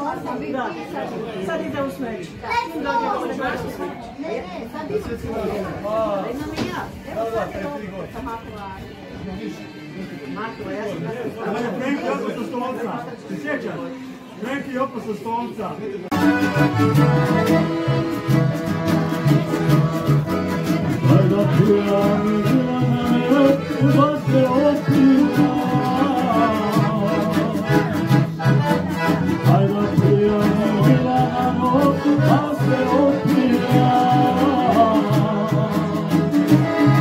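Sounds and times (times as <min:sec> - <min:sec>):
lively music with bass beat: 0:16.1 - 0:37.0.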